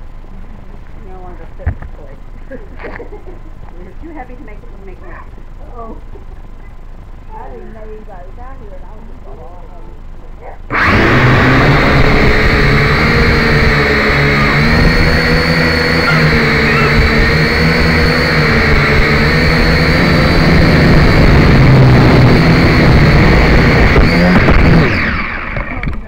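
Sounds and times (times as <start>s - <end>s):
quadcopter motors whining: 10.7s - 26.0s.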